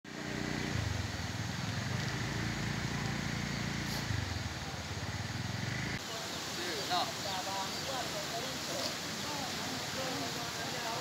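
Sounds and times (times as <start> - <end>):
vehicle engine running: 0.1 - 6.0.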